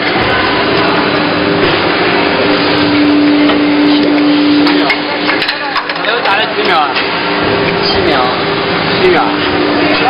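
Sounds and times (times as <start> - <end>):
injection moulding machine running: 0.0 - 10.0
steady hum: 0.0 - 10.0.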